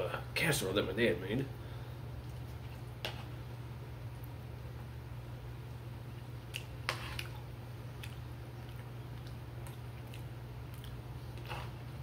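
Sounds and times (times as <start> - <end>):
steady low hum: 0.0 - 12.0
chewing: 6.4 - 12.0.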